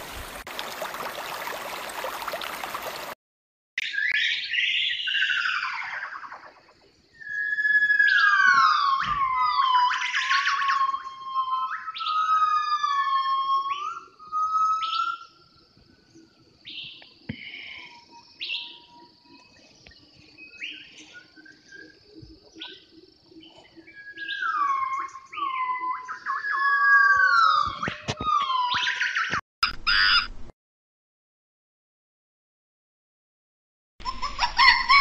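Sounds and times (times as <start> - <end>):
gibbons whooping: 34.1 - 35.0.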